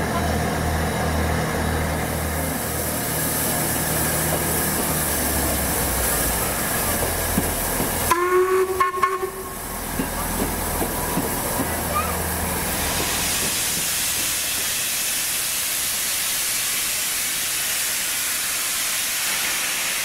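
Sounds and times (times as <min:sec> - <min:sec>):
train low rumble: 0:00.0 - 0:20.0
train horn blast: 0:08.1 - 0:09.6.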